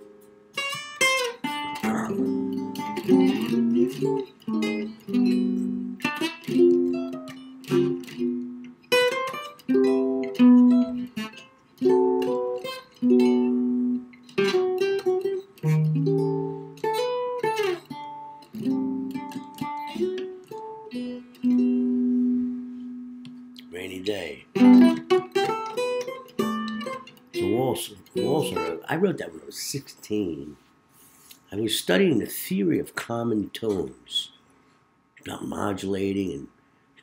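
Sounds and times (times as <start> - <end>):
acoustic guitar playing jazz chords: 0.0 - 31.4.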